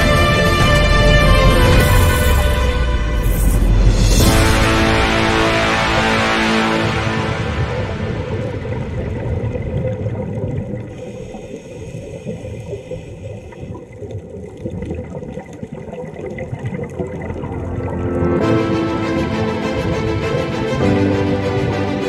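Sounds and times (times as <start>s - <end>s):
background music: 0.0s - 9.8s, 17.2s - 22.0s
muffled underwater rumble: 4.4s - 18.3s.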